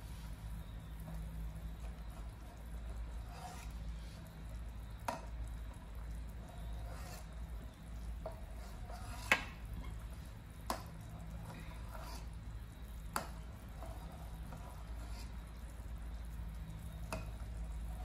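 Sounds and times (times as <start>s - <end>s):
soup bubbling and sloshing: 0.0s - 18.0s.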